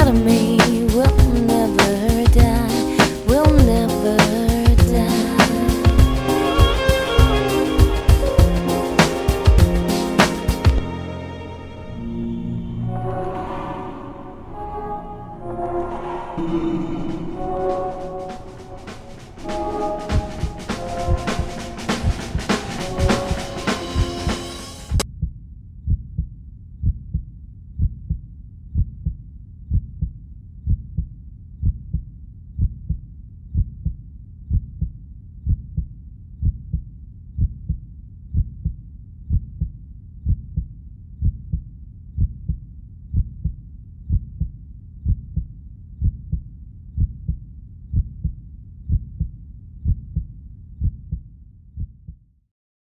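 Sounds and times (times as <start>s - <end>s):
heartbeat thumps: 0.0s - 3.9s, 4.5s - 8.7s, 9.4s - 9.9s, 20.1s - 52.2s.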